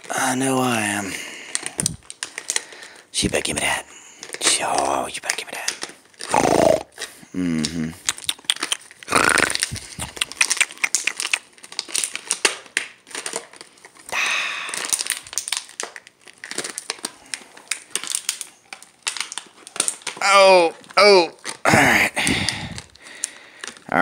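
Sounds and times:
plastic bottle crackling: 0:01.4 - 0:24.0
dog chewing plastic bottle: 0:08.0 - 0:14.1, 0:14.7 - 0:21.7.

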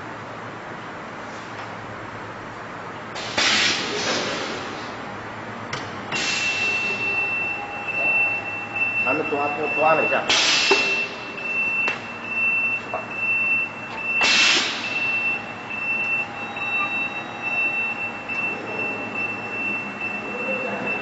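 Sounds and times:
conveyor line whining and rattling: 0:05.0 - 0:21.0
air hiss: 0:14.2 - 0:14.9.

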